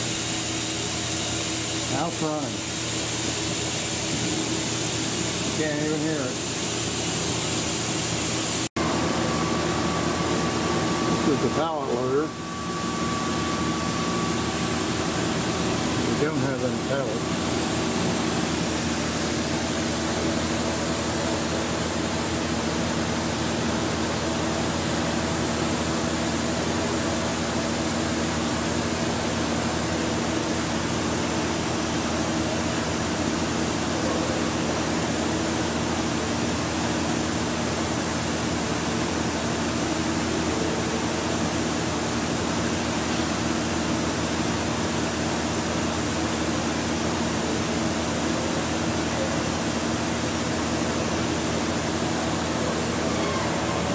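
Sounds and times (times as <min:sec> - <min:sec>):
grinder hiss: 0:00.0 - 0:08.7.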